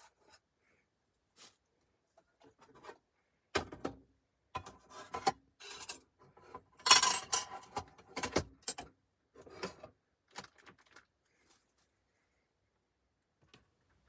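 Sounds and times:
rustling: 1.3 - 2.3.

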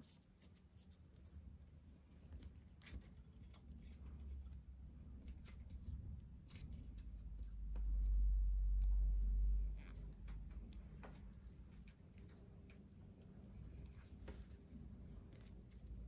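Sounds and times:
paper yarn rustling and clicking: 0.0 - 8.2, 9.9 - 16.0
low rumble: 4.8 - 11.9.

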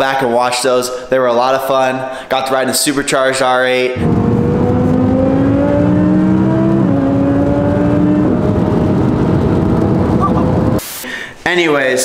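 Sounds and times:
car engine accelerating: 4.0 - 10.8.

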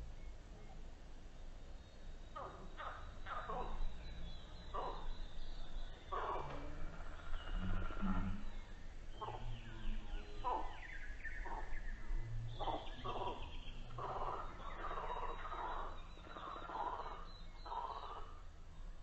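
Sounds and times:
low steady drone: 0.0 - 19.0
frog croaks: 2.4 - 11.8, 12.5 - 18.4.

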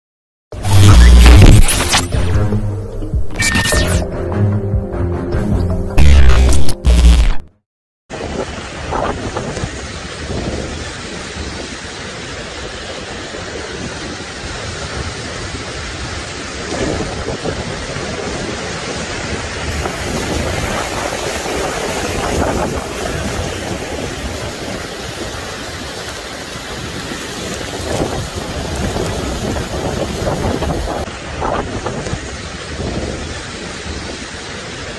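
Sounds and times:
heavy rain: 8.1 - 34.9
wind: 8.1 - 34.9
floodwater running: 8.2 - 34.9.

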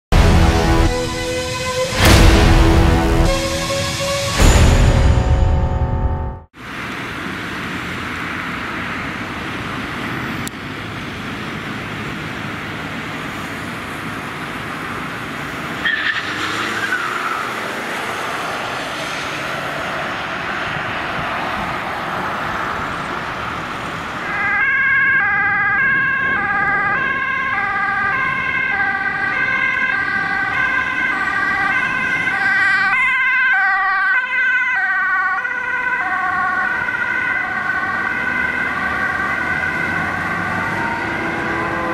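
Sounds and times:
road traffic: 0.0 - 41.9
two-tone ambulance siren: 0.1 - 6.6, 22.5 - 41.9.

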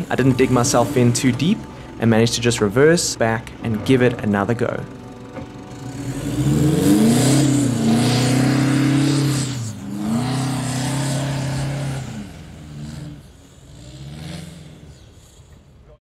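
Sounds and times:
diesel engine revving hard: 5.7 - 15.6.

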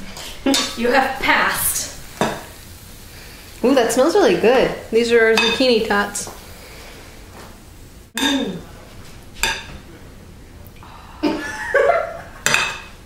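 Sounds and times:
person coughing or humming: 8.2 - 8.7.

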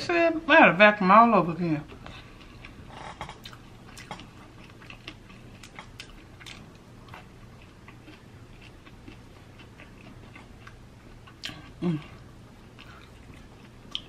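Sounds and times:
biting and chewing: 1.9 - 11.8.

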